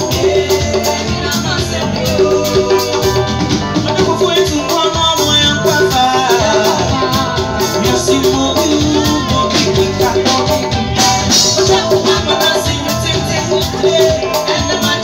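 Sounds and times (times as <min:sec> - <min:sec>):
live band playing: 0:00.0 - 0:15.0
woman singing lead: 0:00.0 - 0:15.0.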